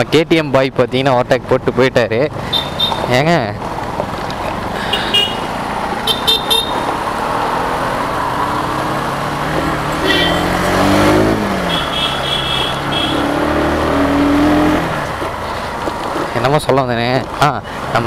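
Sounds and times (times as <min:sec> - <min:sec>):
road and wind noise: 0:00.0 - 0:18.0
vehicle horn toots: 0:02.5 - 0:03.1, 0:04.8 - 0:06.9, 0:10.0 - 0:10.6, 0:11.6 - 0:13.4.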